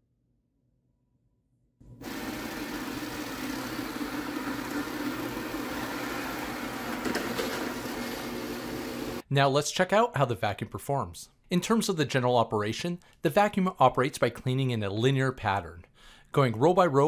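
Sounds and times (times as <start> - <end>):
robot vacuum running: 1.9 - 9.2.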